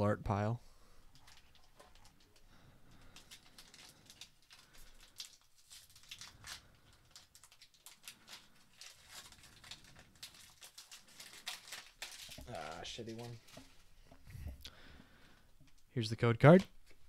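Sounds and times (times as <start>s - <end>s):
foil wrapper crinkling and tearing: 1.1s - 13.9s.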